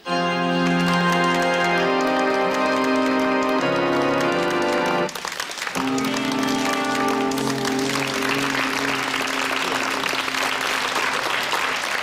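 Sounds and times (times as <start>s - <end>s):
audience applauding: 0.0s - 12.0s
band holding final note: 5.8s - 10.3s.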